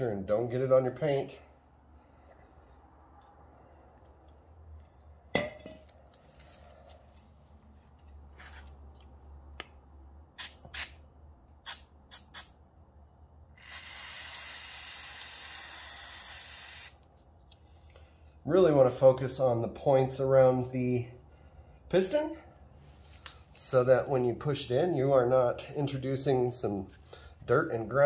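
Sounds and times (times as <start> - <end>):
aerosol spray hissing: 13.6 - 17.0.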